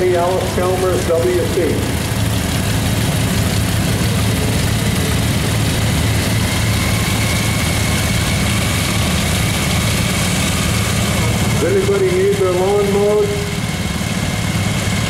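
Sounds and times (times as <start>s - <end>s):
small tractor engine running: 0.0s - 15.0s
thin steady whine: 3.0s - 13.9s.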